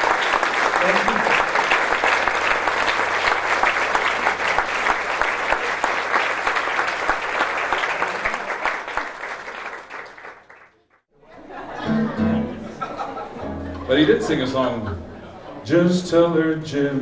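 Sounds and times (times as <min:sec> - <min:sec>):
audience applauding: 0:00.0 - 0:11.0.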